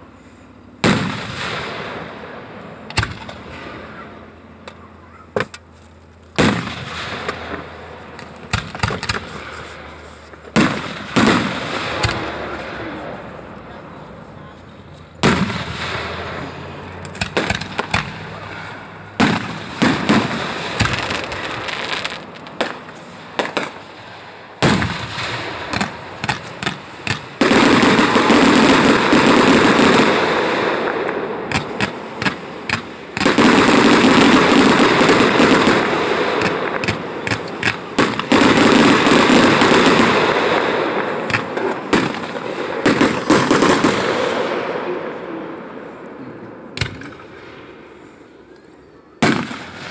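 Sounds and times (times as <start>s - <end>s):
firework bang: 0.8s - 4.3s, 6.4s - 13.8s, 15.2s - 45.0s, 49.2s - 49.9s
fireworks popping and crackling: 0.8s - 45.5s, 46.8s - 48.0s, 49.2s - 49.9s.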